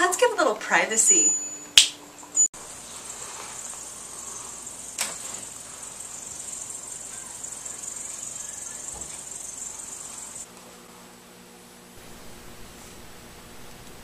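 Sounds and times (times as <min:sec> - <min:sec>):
crickets chirping: 0:02.6 - 0:10.5.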